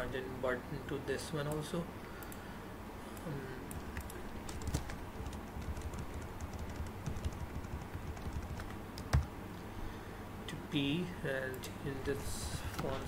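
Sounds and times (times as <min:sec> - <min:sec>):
computer keyboard keys clicking: 0:03.7 - 0:09.3.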